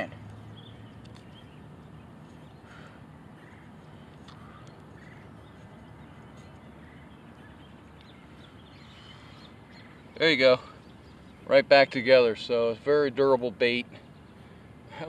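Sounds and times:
short bird calls: 0:00.0 - 0:12.3.

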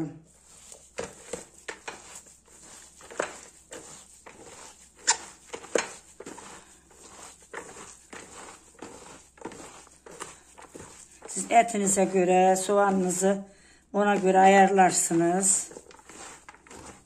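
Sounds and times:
wet squishing of kneaded food: 0:00.2 - 0:13.2, 0:14.0 - 0:17.0.

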